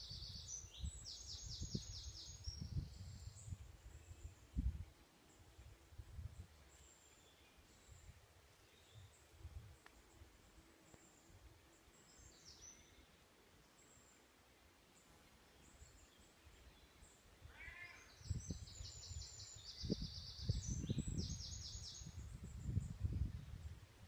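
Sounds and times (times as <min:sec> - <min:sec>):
songbirds singing: 0:00.0 - 0:23.8
wind buffeting microphone: 0:00.1 - 0:04.9, 0:05.6 - 0:06.5, 0:18.2 - 0:24.0.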